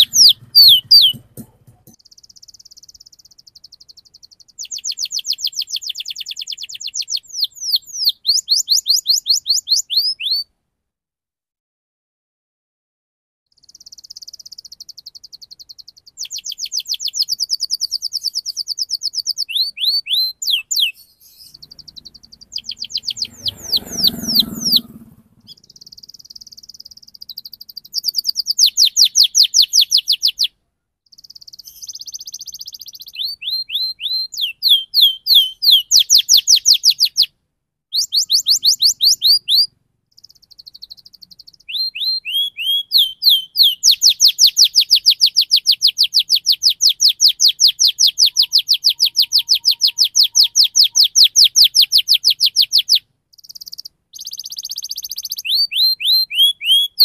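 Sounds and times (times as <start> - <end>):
canary singing: 0.0 - 10.5, 13.5 - 37.3, 37.9 - 57.0.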